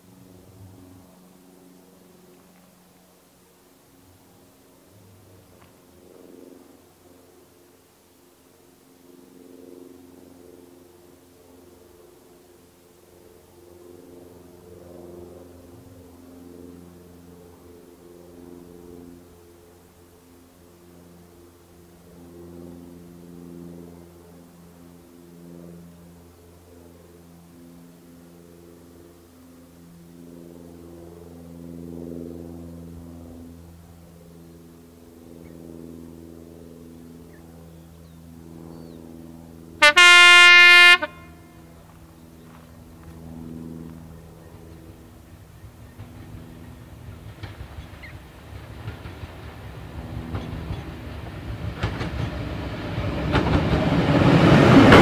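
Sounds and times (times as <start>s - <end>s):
distant diesel locomotive engine: 0.0s - 55.0s
locomotive horn blast: 39.8s - 41.8s.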